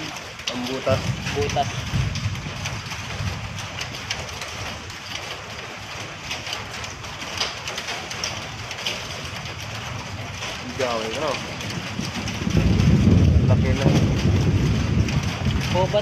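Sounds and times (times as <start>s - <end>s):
low steady rumble: 0.0s - 5.1s, 8.4s - 16.0s
rain and stones ticking: 0.0s - 16.0s.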